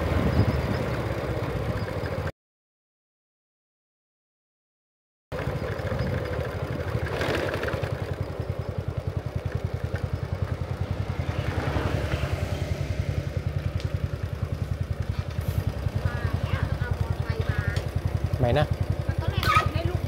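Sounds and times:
small engine puttering: 0:05.4 - 0:20.0.

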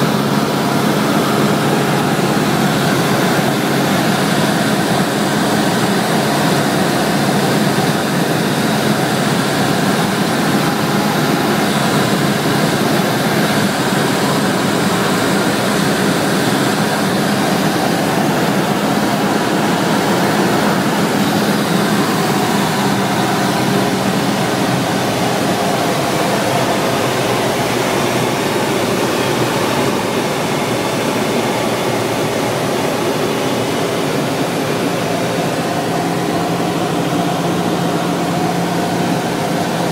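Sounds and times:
aircraft engine and propeller: 0:00.0 - 0:39.9
airflow noise: 0:00.0 - 0:39.9.

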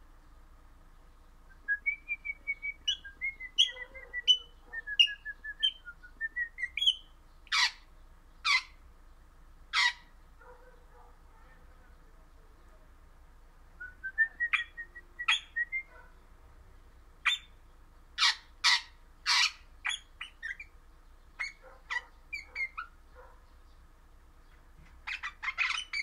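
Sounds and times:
parakeet chirps and squawks: 0:03.6 - 0:05.1, 0:06.6 - 0:08.8, 0:09.7 - 0:10.2, 0:17.2 - 0:17.6, 0:18.2 - 0:23.3, 0:25.0 - 0:26.0.

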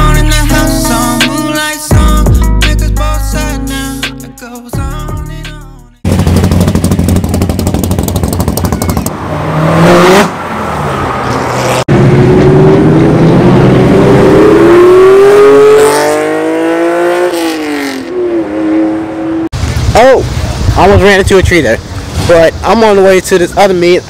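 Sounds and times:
rumbling car exhaust revving: 0:06.0 - 0:10.3
car accelerating hard: 0:06.0 - 0:19.5.

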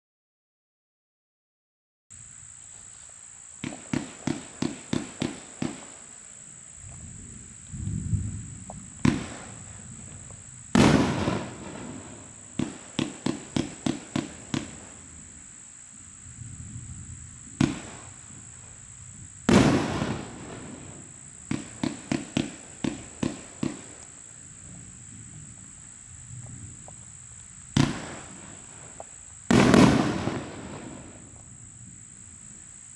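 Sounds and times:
fireworks booming shots: 0:03.6 - 0:06.2, 0:06.8 - 0:15.4, 0:16.3 - 0:27.0, 0:27.7 - 0:32.0
rapid firework pops: 0:03.6 - 0:06.2, 0:08.6 - 0:15.1, 0:17.5 - 0:18.7, 0:19.5 - 0:25.7, 0:27.7 - 0:31.5.

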